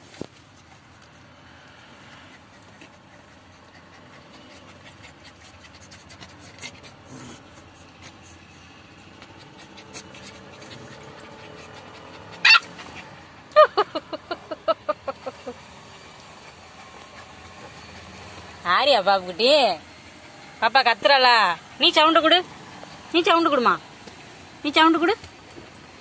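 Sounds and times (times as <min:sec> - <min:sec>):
puppies panting: 0:00.4 - 0:26.0
puppy yelping: 0:09.3 - 0:13.1.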